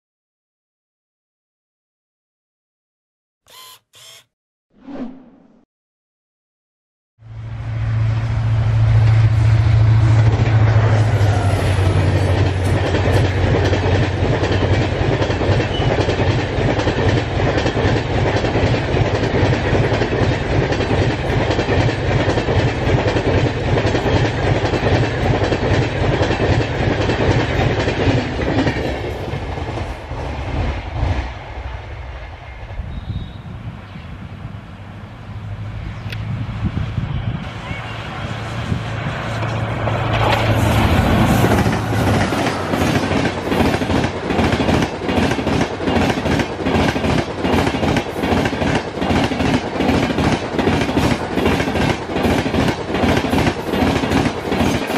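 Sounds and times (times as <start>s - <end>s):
train engine low drone: 7.2s - 54.9s
clickety-clack of train wheels: 9.0s - 33.0s, 39.1s - 54.9s.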